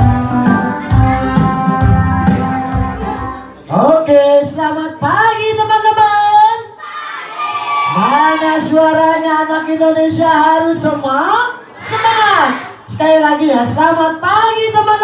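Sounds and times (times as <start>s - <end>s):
keyboard music with steady beat: 0.0s - 3.8s.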